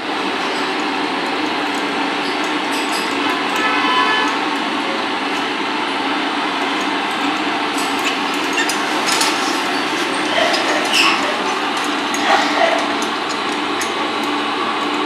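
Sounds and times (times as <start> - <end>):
steady machine noise: 0.0 - 15.0
metal clinks and knocks: 0.6 - 4.6, 6.6 - 15.0.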